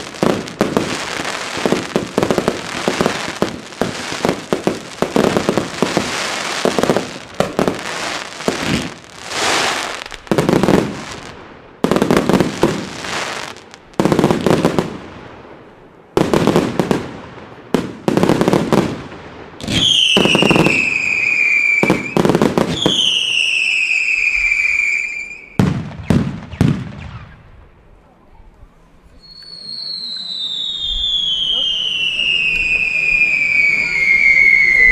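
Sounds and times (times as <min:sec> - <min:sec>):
fireworks hiss: 0:00.0 - 0:11.4, 0:29.4 - 0:34.9
fireworks shots crackling: 0:00.0 - 0:27.6, 0:29.4 - 0:34.9
descending firework whistle: 0:19.6 - 0:27.4, 0:29.1 - 0:34.9.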